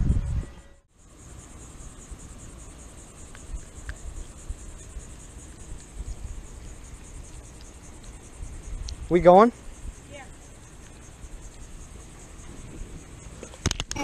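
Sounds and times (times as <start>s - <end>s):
insects chirping: 0.0s - 14.0s
faint clicks: 7.3s - 8.2s.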